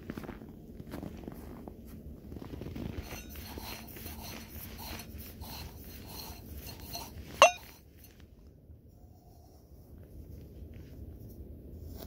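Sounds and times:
footsteps crunching through snow: 0:00.0 - 0:05.8.

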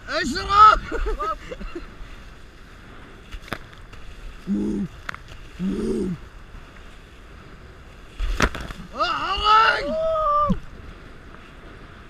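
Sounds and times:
rush of wind and water: 0:00.0 - 0:12.0
person hooting: 0:08.9 - 0:10.6.

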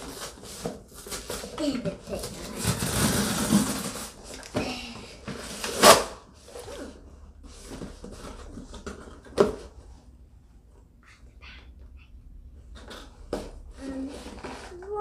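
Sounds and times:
packing tape ripping: 0:05.6 - 0:06.2.

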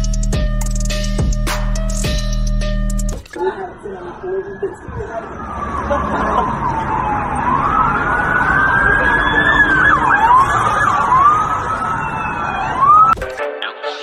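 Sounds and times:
street noise: 0:00.0 - 0:13.5
police sirens wailing: 0:03.4 - 0:13.2.

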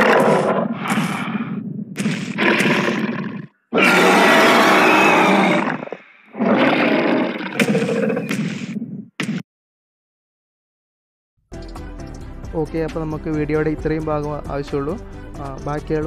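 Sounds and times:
dinosaur roaring: 0:00.0 - 0:01.5, 0:02.4 - 0:08.3.

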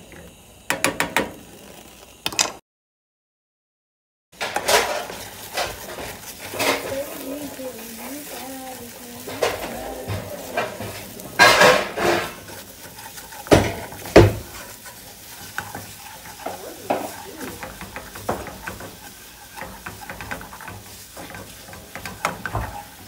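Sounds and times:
food sizzling in a frying pan: 0:00.0 - 0:02.2, 0:04.4 - 0:23.0
utensil scraping a pan: 0:04.4 - 0:23.0
knocks on a pan: 0:13.5 - 0:14.5.

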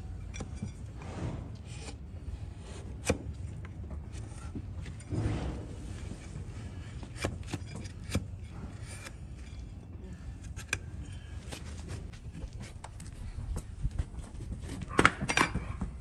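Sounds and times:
blade cracking and scraping hoof horn: 0:06.1 - 0:13.1.

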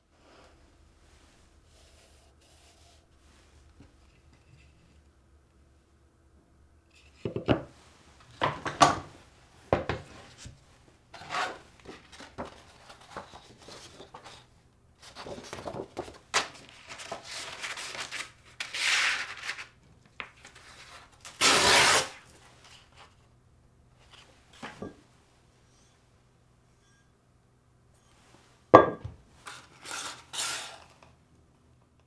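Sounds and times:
sandpaper rustling and scraping: 0:29.4 - 0:30.9.

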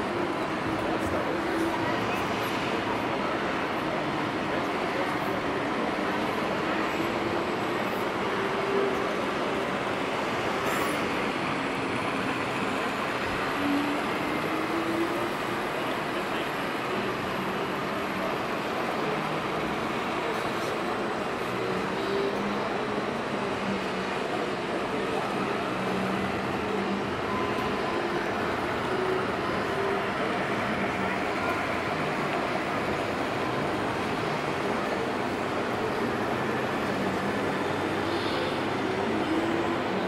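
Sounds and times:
busy exhibition hall din: 0:00.0 - 0:40.0.

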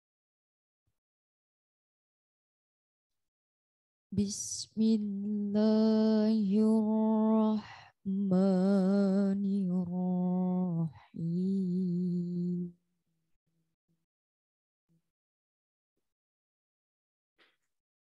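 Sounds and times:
woman reciting melodically: 0:04.2 - 0:12.8.

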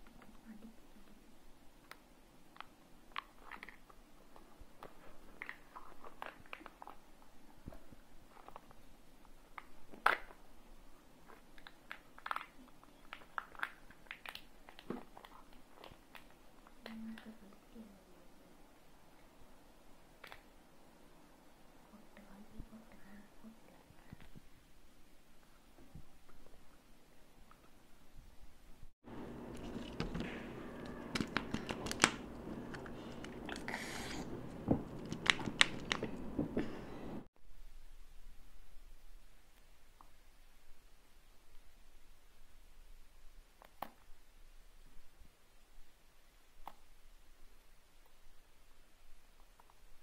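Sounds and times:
plastic eggs clicking and tapping: 0:29.4 - 0:33.7, 0:34.4 - 0:36.3.

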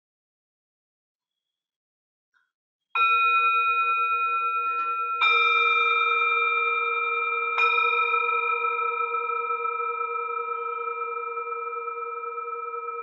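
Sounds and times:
metal bell struck with mallet: 0:03.0 - 0:13.0.

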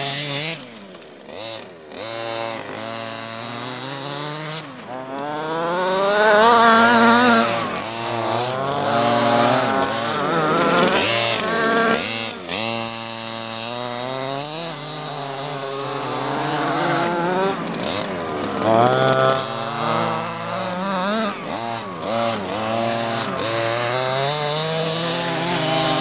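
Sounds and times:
small two-stroke engine revving: 0:00.0 - 0:26.0.

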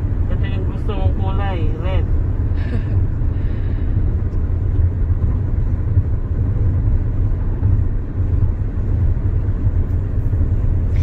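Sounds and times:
road rumble inside car cabin: 0:00.0 - 0:11.0.

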